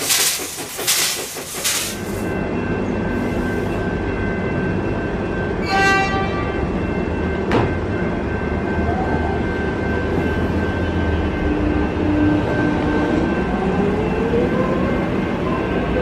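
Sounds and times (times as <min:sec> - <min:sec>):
train electrical whine: 0:00.0 - 0:05.5
train low rumble: 0:00.0 - 0:16.0.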